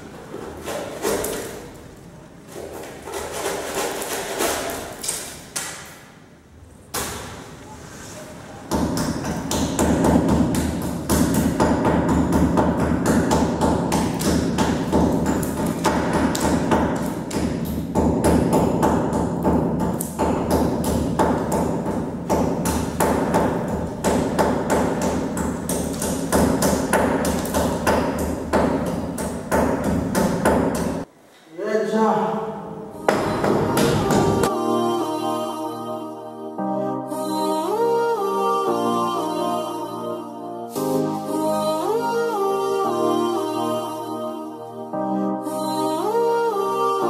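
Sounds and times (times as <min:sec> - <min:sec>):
hammer striking chisel into wall: 0:08.7 - 0:31.1.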